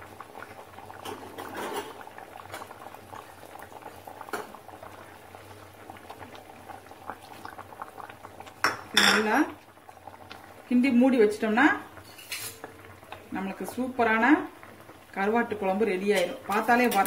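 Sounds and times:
curry boiling and popping: 0:00.0 - 0:17.0.

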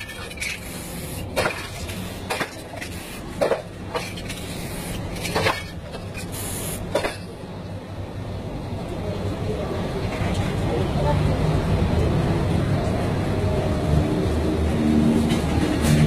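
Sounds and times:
spray can hissing: 0:06.4 - 0:06.9.

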